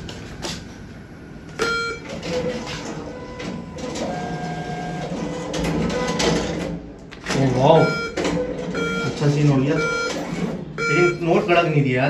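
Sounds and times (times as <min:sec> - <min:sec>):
cash dispenser whirring: 0:01.5 - 0:11.8
atm beep: 0:01.6 - 0:05.2, 0:07.6 - 0:11.7.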